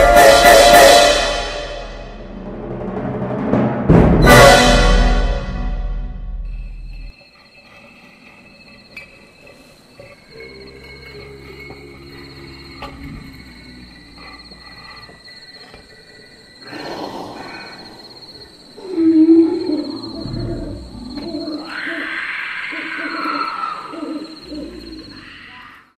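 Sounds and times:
high chirring: 4.2 - 16.7
hooting calls: 7.6 - 25.9.

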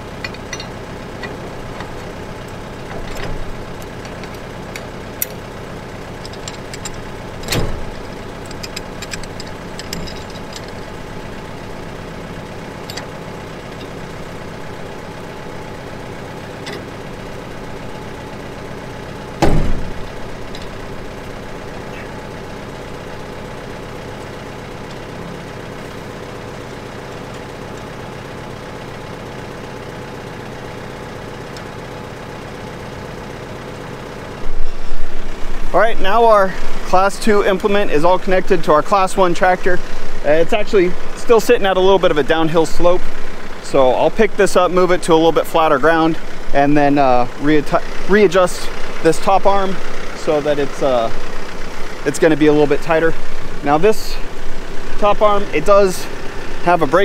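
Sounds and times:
metal clanks: 0.0 - 5.5, 6.1 - 11.8, 12.6 - 14.9, 16.4 - 17.6, 19.4 - 22.2
tractor diesel engine idling: 0.0 - 57.0.

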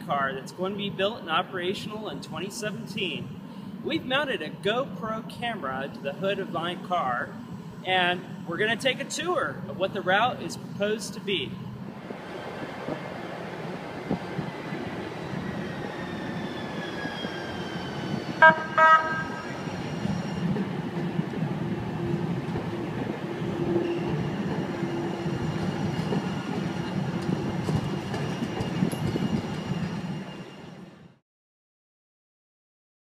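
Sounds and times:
train wheels rumbling on rail: 3.0 - 31.1
train horn toots: 18.4 - 19.6.

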